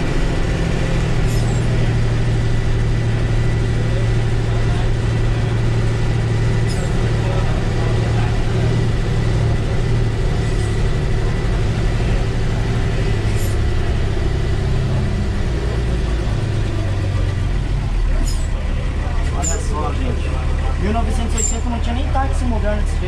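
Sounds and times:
bus diesel engine humming: 0.0 - 23.0.

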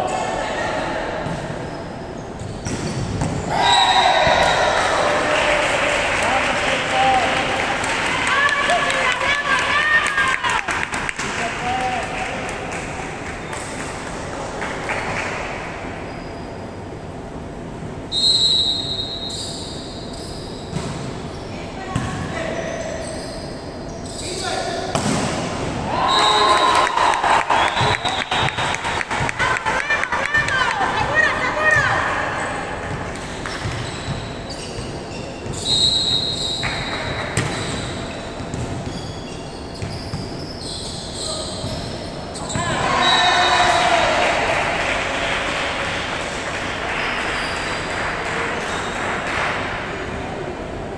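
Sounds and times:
gym background noise: 0.0 - 50.9
shoe squeaks on court floor: 1.6 - 3.2, 19.0 - 21.6, 22.5 - 24.6, 33.5 - 42.6
volleyball smack: 24.9 - 25.5.

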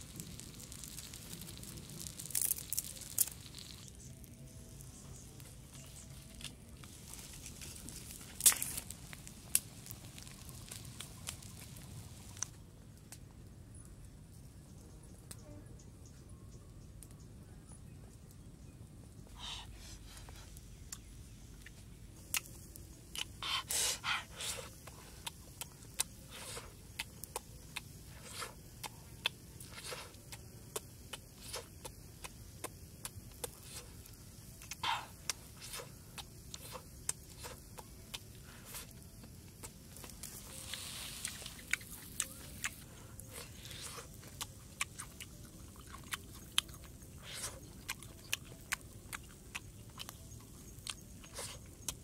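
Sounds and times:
faint hiss: 0.0 - 12.5, 18.6 - 49.0
wood fire crackling and popping: 0.0 - 13.3, 24.5 - 52.0
wet chewing and lip smacks: 20.9 - 52.0
breathy puffs blowing on food: 23.3 - 25.3.

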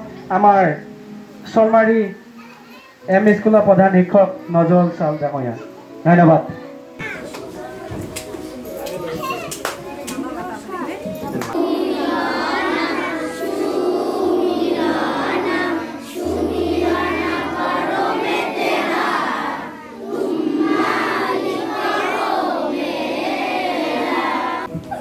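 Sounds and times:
children singing together: 7.0 - 9.6, 11.4 - 24.9.

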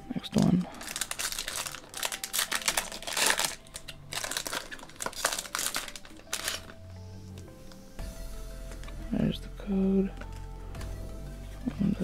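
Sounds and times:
foil wrapper crinkling and tearing: 0.2 - 6.9.

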